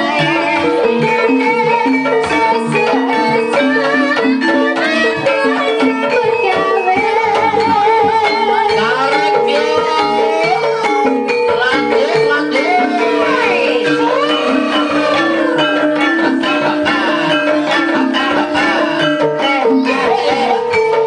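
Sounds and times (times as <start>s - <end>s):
bronze metallophones playing: 0.0s - 21.0s
hand drums: 0.0s - 21.0s
wavering melody line: 0.0s - 21.0s.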